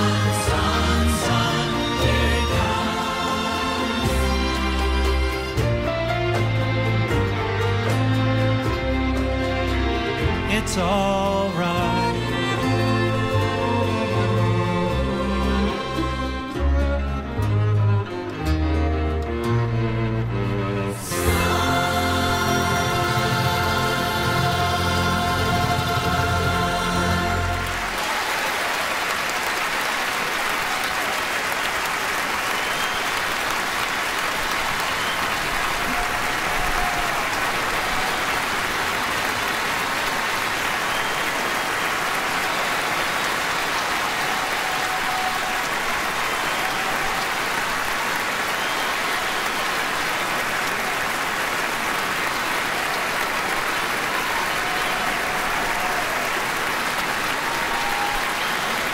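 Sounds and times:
audience applauding: 0:00.0 - 0:16.8, 0:21.0 - 0:58.9.

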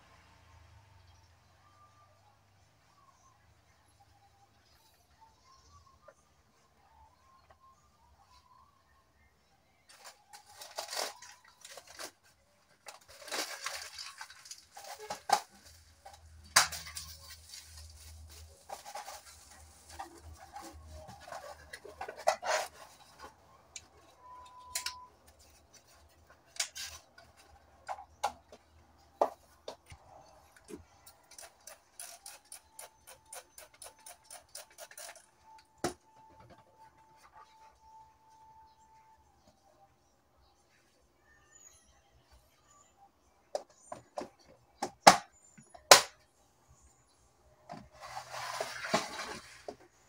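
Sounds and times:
rustling: 0:09.9 - 0:24.4, 0:47.8 - 0:50.0.

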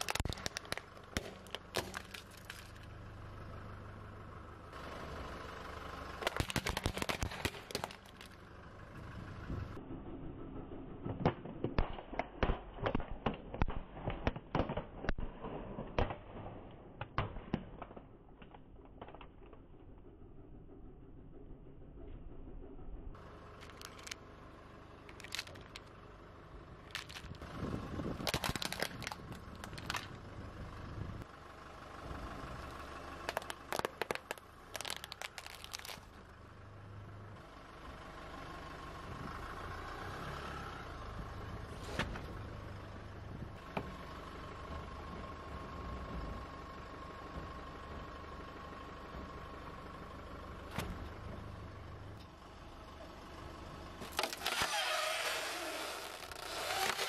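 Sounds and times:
plastic toys cracking: 0:00.0 - 0:02.9, 0:06.2 - 0:08.4, 0:23.6 - 0:24.2, 0:25.1 - 0:25.9, 0:26.9 - 0:27.4, 0:28.2 - 0:30.2, 0:33.3 - 0:36.1, 0:54.1 - 0:57.0
car engine running slowly: 0:00.0 - 0:57.0.

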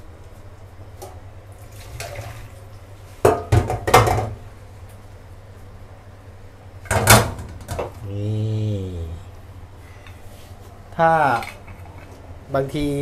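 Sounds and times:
low hum: 0:07.9 - 0:12.5.

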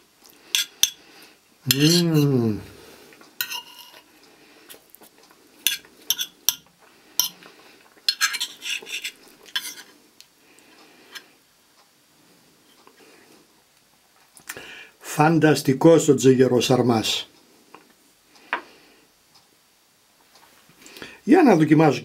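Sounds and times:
person humming: 0:01.7 - 0:02.9
cutlery clinking on plate: 0:03.4 - 0:04.0, 0:05.7 - 0:07.5, 0:08.1 - 0:09.9.

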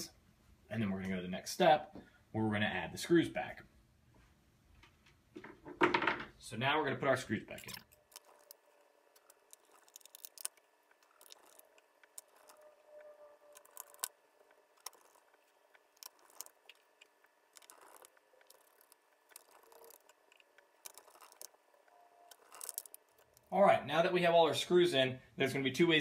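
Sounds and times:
screwdriver turning screws: 0:07.6 - 0:23.5.

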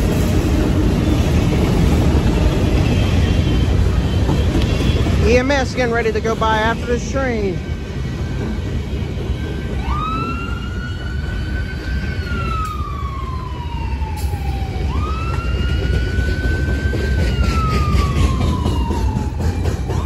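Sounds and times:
freight train rumbling on rails: 0:00.0 - 0:20.0
ambulance siren wailing: 0:06.3 - 0:20.0.

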